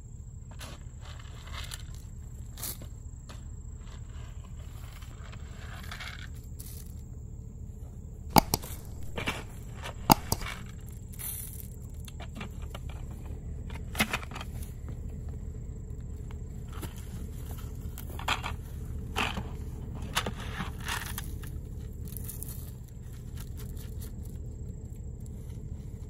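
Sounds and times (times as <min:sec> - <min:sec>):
steady low rumble: 0:06.4 - 0:26.0
corn scattered from plastic bucket: 0:08.3 - 0:14.8, 0:16.8 - 0:24.4.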